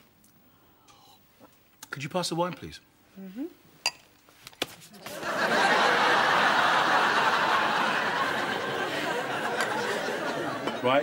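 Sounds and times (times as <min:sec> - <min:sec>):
audience laughing: 0:05.1 - 0:11.0.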